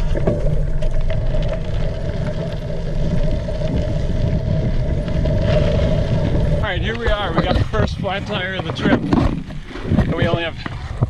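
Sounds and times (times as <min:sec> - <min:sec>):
faint steady whine: 0:00.0 - 0:11.0
wind buffeting microphone: 0:02.4 - 0:11.0
tyres rattling on gravel: 0:05.4 - 0:10.7.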